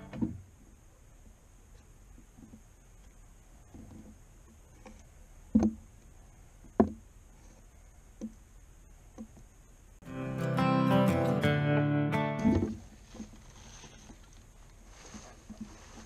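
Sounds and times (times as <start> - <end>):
acoustic guitar music: 10.0 - 12.9.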